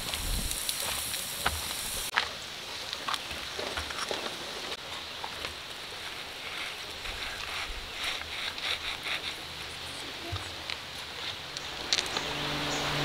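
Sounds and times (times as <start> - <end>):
stream water rushing: 4.3 - 13.0.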